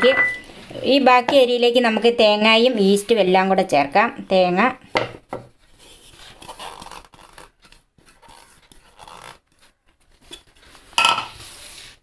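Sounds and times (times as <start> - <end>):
coconut scraping rustle: 5.7 - 12.0.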